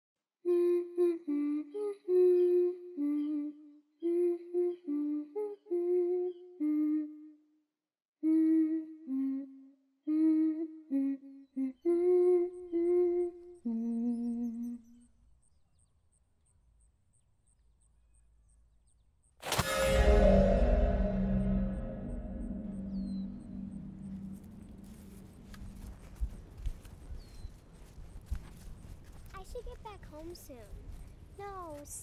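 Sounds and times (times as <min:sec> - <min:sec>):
high voice humming a tune: 0:00.4 - 0:07.4, 0:08.2 - 0:15.0
faint low rumble: 0:19.6 - 0:27.0.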